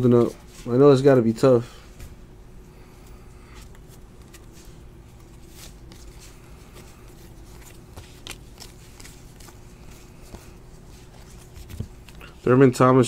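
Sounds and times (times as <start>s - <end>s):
trading cards flipped: 3.5s - 12.4s.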